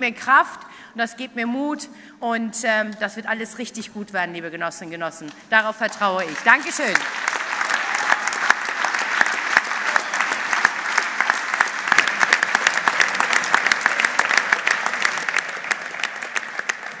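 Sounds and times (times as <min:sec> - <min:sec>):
audience applauding: 0:06.2 - 0:17.0.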